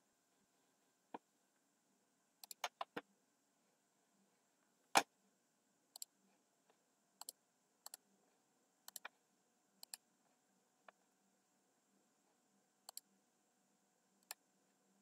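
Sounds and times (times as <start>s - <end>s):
faint computer mouse clicks: 2.4s - 3.0s, 8.9s - 9.1s, 9.8s - 10.0s, 12.9s - 13.1s.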